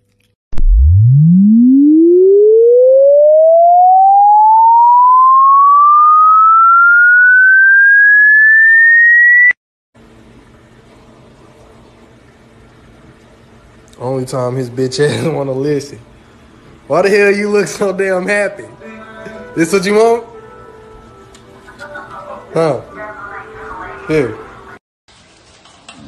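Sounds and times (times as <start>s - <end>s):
rising electronic test tone: 0.5s - 9.6s.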